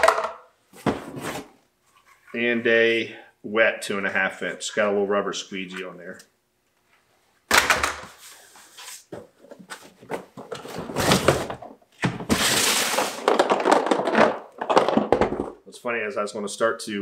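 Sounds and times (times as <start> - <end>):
cardboard rustling and scraping: 0.7 - 2.3, 8.2 - 13.5.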